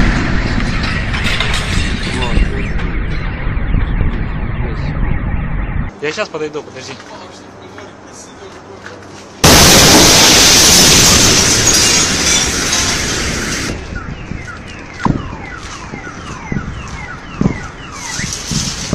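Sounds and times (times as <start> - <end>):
car alarms wailing: 2.3 - 5.9, 10.2 - 18.9
extremely loud blast: 9.4 - 13.9.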